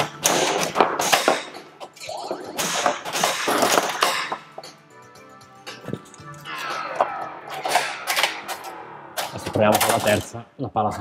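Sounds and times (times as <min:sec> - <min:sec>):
pinball machine crashing and hissing: 0:00.0 - 0:01.7, 0:02.4 - 0:04.4, 0:06.5 - 0:10.2.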